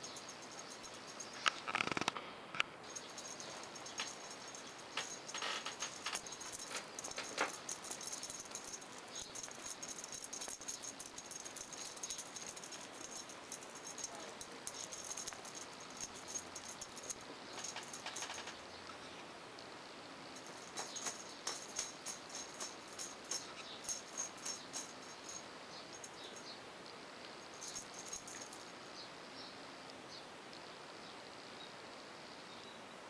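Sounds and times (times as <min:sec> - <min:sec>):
light rattling and clicks: 0:00.0 - 0:02.2, 0:02.9 - 0:19.0, 0:20.4 - 0:26.5, 0:27.5 - 0:28.7.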